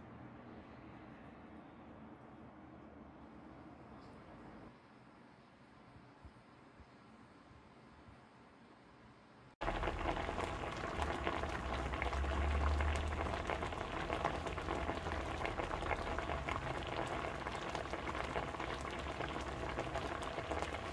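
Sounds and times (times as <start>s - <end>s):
food sizzling in a frying pan: 9.6s - 20.9s.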